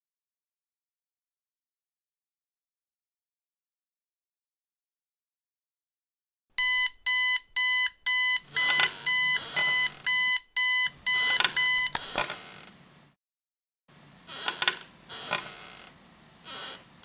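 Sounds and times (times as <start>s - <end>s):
electronic alarm beeping: 6.6s - 12.0s.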